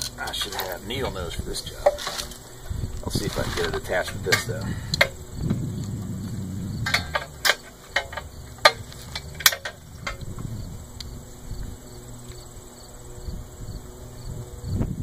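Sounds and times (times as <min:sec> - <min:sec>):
handling rustle: 0:00.0 - 0:05.3
metal spring clicks: 0:06.8 - 0:10.3.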